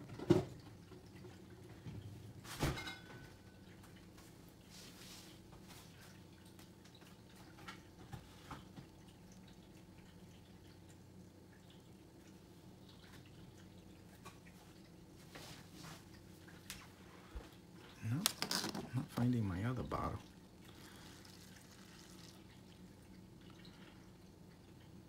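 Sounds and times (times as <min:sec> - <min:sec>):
liquid dripping through funnel: 0:08.6 - 0:15.2, 0:17.6 - 0:25.0.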